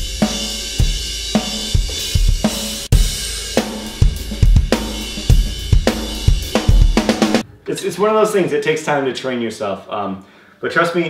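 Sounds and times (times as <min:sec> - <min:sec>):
drum kit playing a beat: 0:00.0 - 0:07.5.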